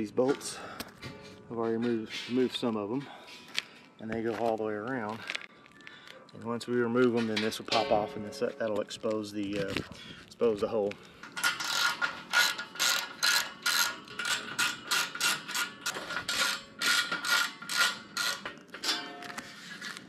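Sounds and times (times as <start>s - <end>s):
ratchet wrench clicking: 11.4s - 18.5s.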